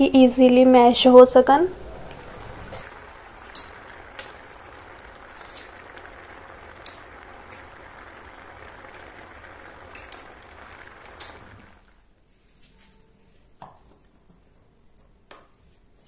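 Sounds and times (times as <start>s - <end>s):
water boiling in a pan: 1.7s - 12.2s.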